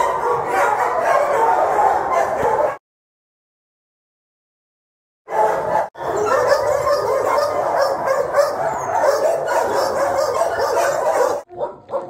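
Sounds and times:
many dogs barking and yelping: 0:00.0 - 0:02.8, 0:05.3 - 0:12.0.

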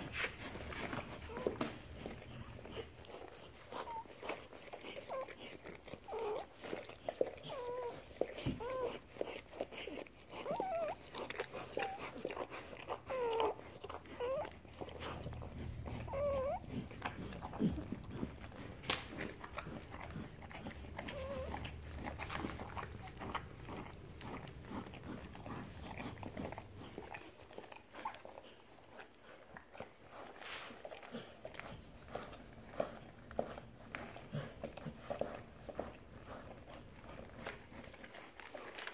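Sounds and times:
puppies squeaking: 0:07.2 - 0:09.4, 0:10.3 - 0:18.7, 0:19.7 - 0:28.4.

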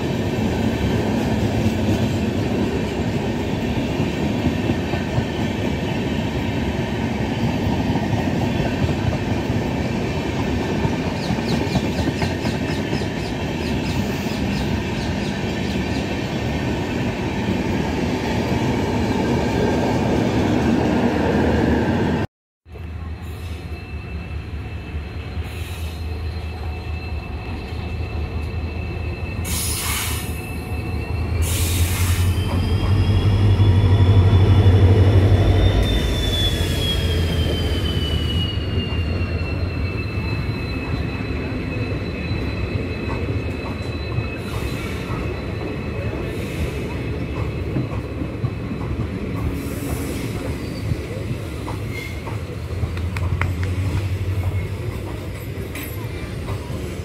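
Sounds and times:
diesel locomotive engine drone: 0:00.0 - 0:57.0
wheels squealing: 0:23.5 - 0:47.2.

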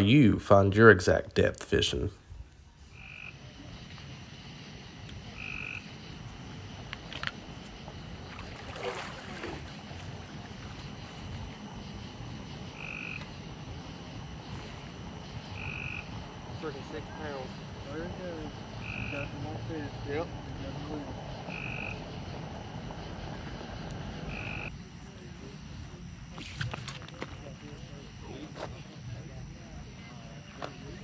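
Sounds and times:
frogs calling: 0:02.8 - 0:28.4.

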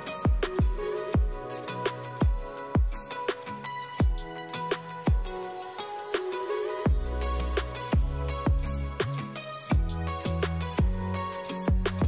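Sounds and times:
held synth chords: 0:00.0 - 0:11.9
kick drum beat: 0:00.3 - 0:01.4, 0:02.2 - 0:03.1, 0:04.0 - 0:04.3, 0:05.1 - 0:05.4, 0:06.9 - 0:07.1, 0:08.0 - 0:08.8, 0:09.7 - 0:10.0, 0:10.8 - 0:11.1, 0:11.7 - 0:12.0.

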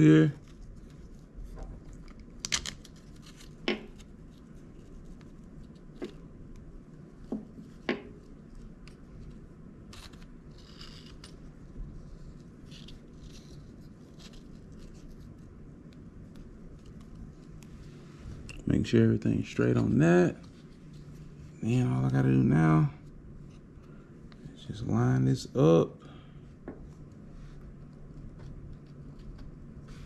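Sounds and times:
scratching and rubbing: 0:07.6 - 0:15.6.

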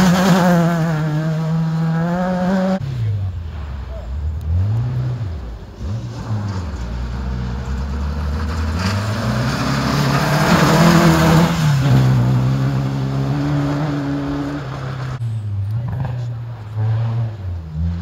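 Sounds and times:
rally car engine passing: 0:00.0 - 0:18.0
tyres on gravel: 0:03.3 - 0:17.1.

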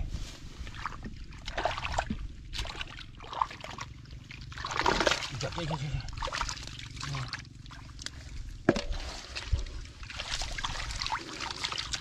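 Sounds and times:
hands splashing in muddy water: 0:00.7 - 0:05.6, 0:06.2 - 0:12.0
sharp splash: 0:04.5 - 0:05.5.

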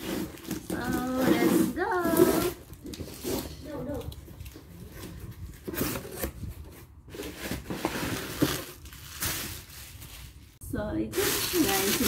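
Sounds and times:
cardboard box opening: 0:00.0 - 0:09.6
bubble wrap rustling: 0:00.0 - 0:12.0.

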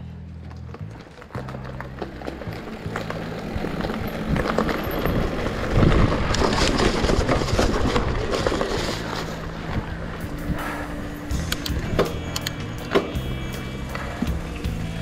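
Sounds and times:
tyres on dirt and stones: 0:00.0 - 0:15.0
bike clattering over bumps: 0:00.4 - 0:15.0
wind noise on microphone: 0:03.5 - 0:15.0.

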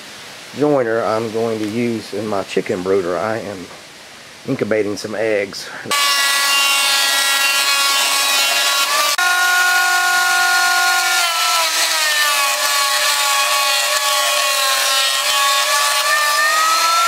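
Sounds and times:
thickness planer motor whine: 0:05.9 - 0:17.0.

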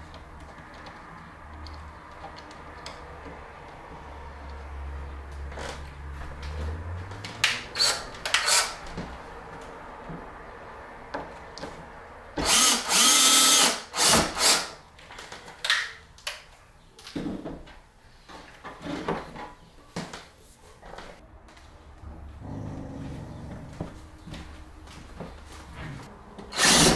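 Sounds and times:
cordless drill running: 0:07.8 - 0:08.7, 0:12.4 - 0:14.8, 0:26.5 - 0:26.9.

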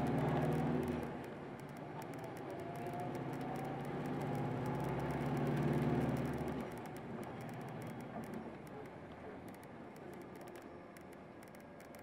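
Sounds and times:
bus diesel engine accelerating: 0:00.0 - 0:01.2, 0:02.2 - 0:08.2
bus running noise: 0:00.0 - 0:12.0.

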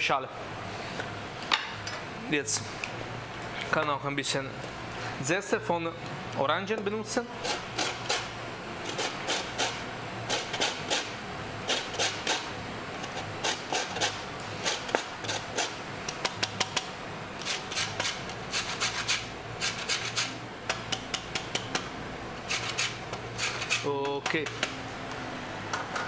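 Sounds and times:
zest grating on grater: 0:07.4 - 0:08.3, 0:08.9 - 0:12.5, 0:13.1 - 0:15.8, 0:17.4 - 0:20.4, 0:22.5 - 0:23.9.

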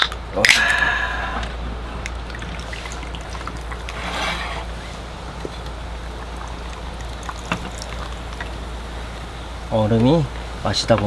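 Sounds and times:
steady low hum: 0:00.0 - 0:11.0
drink pouring into metal mug: 0:01.9 - 0:09.4.

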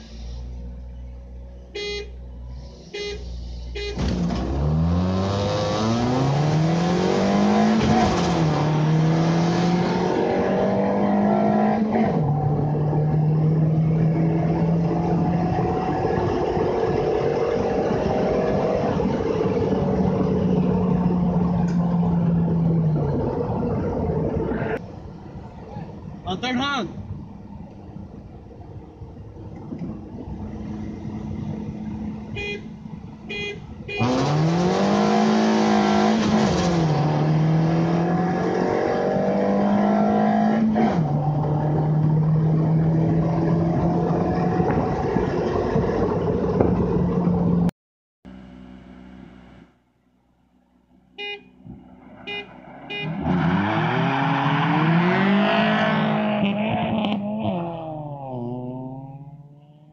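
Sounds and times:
cars launching and pulling away: 0:00.0 - 0:26.2, 0:27.0 - 0:47.7, 0:51.5 - 0:59.9
car horn honks: 0:01.7 - 0:02.2, 0:02.8 - 0:04.1, 0:32.3 - 0:34.3, 0:51.2 - 0:51.6, 0:52.2 - 0:53.3
car engine revving through gears: 0:04.0 - 0:23.6, 0:34.0 - 0:47.7, 0:53.0 - 0:59.9.

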